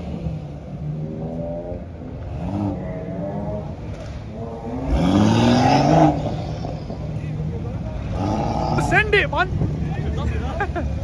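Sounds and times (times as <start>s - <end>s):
car engine revving: 0.0s - 10.5s.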